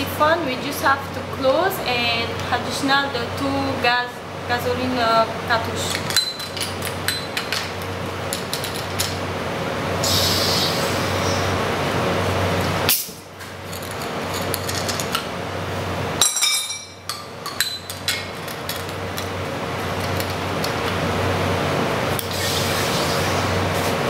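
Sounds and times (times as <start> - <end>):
steady gas hiss: 10.0 - 11.6.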